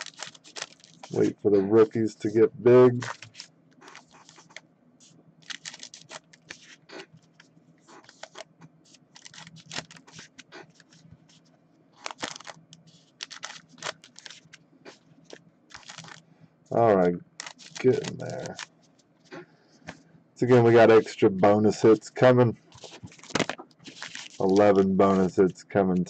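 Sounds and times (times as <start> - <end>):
foil card wrappers crinkling: 0.0 - 1.3, 2.9 - 4.6, 5.4 - 7.4, 8.0 - 11.4, 12.0 - 16.2, 17.2 - 19.4, 22.7 - 25.4
faint steady hum: 0.0 - 26.0.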